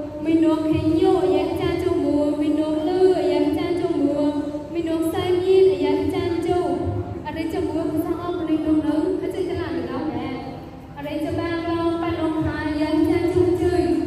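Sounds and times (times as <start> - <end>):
woman chanting: 0.2 - 10.3.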